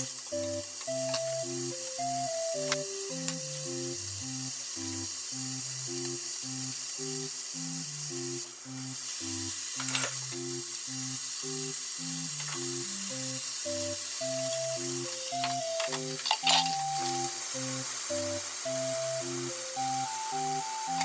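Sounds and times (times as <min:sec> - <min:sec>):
background music with low notes: 0:00.0 - 0:21.0
food sizzling in a pan: 0:00.0 - 0:21.0.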